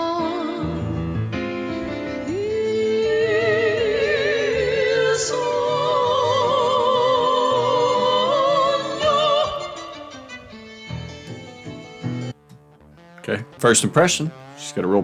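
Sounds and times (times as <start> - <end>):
woman singing operatically: 0.0 - 0.9, 2.2 - 10.3
keyboard accompaniment: 0.0 - 15.0.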